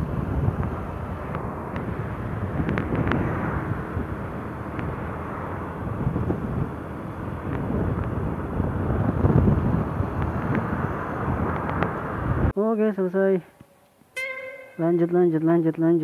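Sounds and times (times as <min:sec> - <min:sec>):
motorcycle running: 0:00.0 - 0:12.5
wind rushing over microphone: 0:00.0 - 0:12.6.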